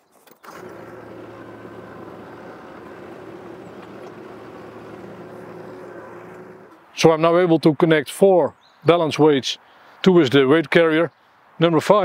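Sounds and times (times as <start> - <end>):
tractor diesel engine running: 0.4 - 6.8.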